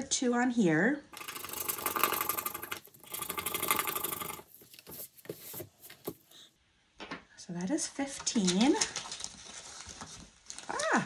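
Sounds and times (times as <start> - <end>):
scratching coating off paper card: 1.2 - 6.3.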